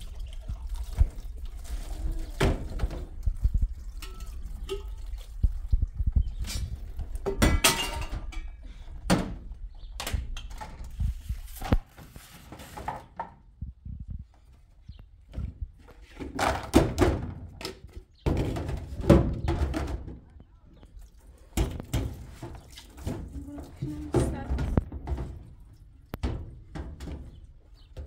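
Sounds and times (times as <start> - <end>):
dishes and plastic containers clattering: 1.7 - 5.2, 6.3 - 9.4, 15.9 - 20.2.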